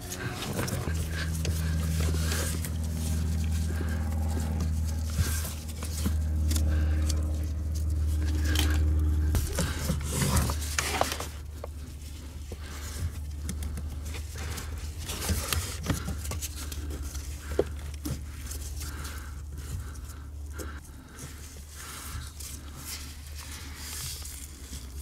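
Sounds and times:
small scrapes and clicks: 0.0s - 19.2s
gloves rustling: 0.0s - 25.0s
steady low hum: 0.0s - 25.0s.

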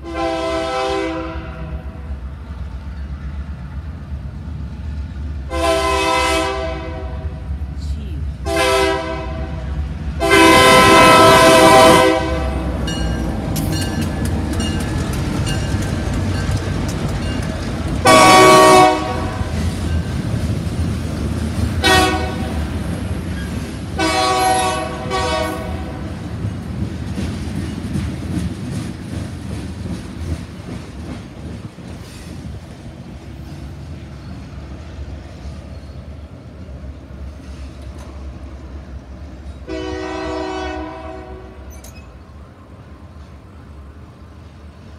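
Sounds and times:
locomotive horn blasts: 0.0s - 2.0s, 5.5s - 7.4s, 8.4s - 12.8s, 18.0s - 19.5s, 21.8s - 22.6s, 24.0s - 26.0s, 39.6s - 41.7s
train cars rumbling and clattering: 0.0s - 44.9s.

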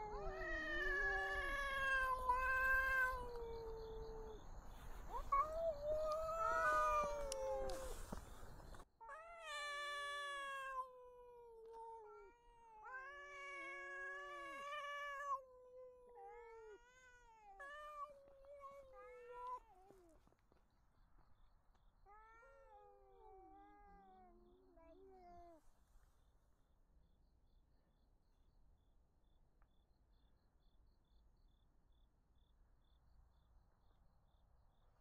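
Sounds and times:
cats caterwauling: 0.0s - 8.2s, 9.0s - 20.1s.

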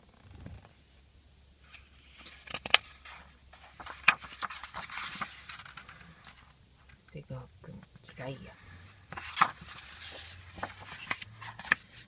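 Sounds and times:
book pages turning: 1.6s - 6.6s, 8.6s - 12.0s
paper rustling: 1.6s - 6.6s, 8.6s - 12.0s.

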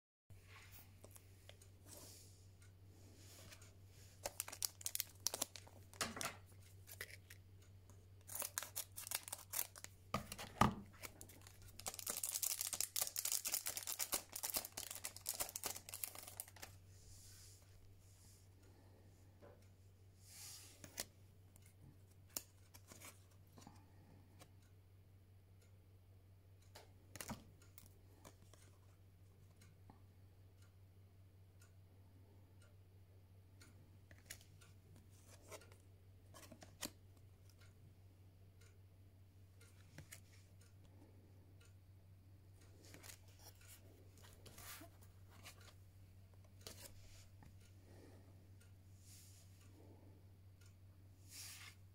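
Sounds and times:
cards clicking and rustling: 4.2s - 7.4s, 8.2s - 16.8s, 42.8s - 45.8s.

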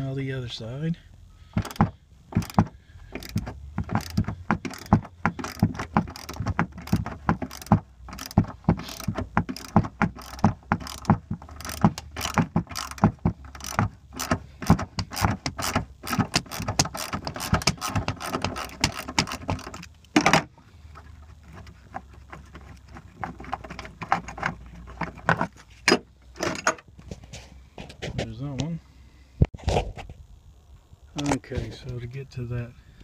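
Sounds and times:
hand ratchet clicking: 1.6s - 20.4s.

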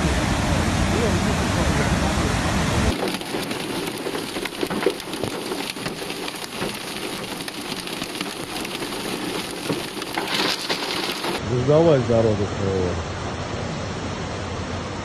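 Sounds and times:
heavy rain hissing: 2.6s - 11.4s
hailstones ticking: 2.9s - 11.4s.

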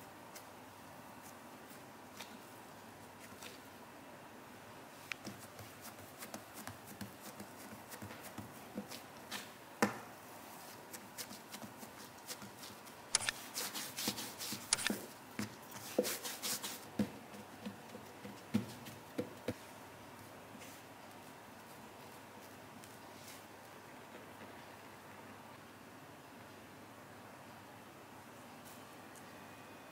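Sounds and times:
hand patting dough: 5.2s - 10.1s.

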